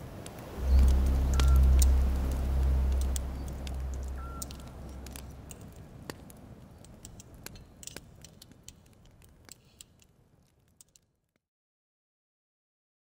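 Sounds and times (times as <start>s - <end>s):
faint clicks and ticks: 0.2s - 11.4s
low rumble: 0.3s - 7.8s.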